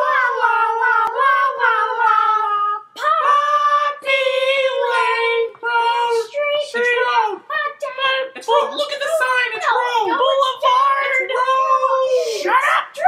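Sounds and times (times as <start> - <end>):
high-pitched voice singing: 0.0 - 8.9.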